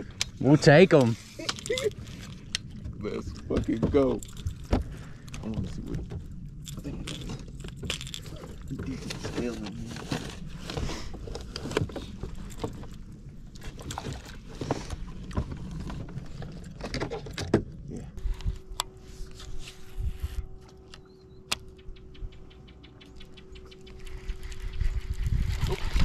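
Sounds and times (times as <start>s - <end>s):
steady hum: 0.0s - 25.6s
knocks and rustling handling fish: 1.0s - 17.7s.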